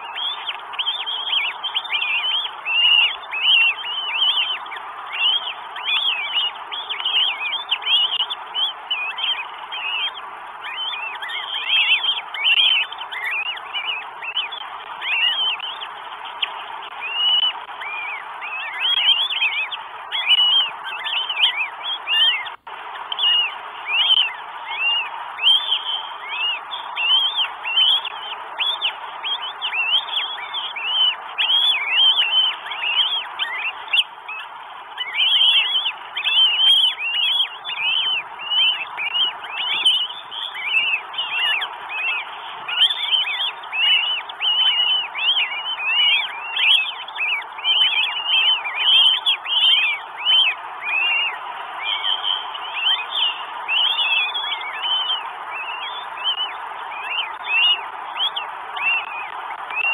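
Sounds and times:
hawk calling: 0.0s - 59.9s
steady hiss: 22.5s - 31.4s.

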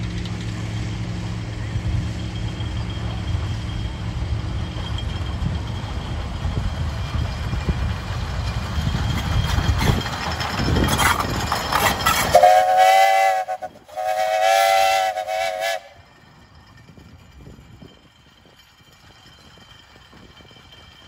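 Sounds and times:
steam locomotive rumbling: 0.0s - 21.0s
steam whistle blasts: 12.3s - 16.0s.

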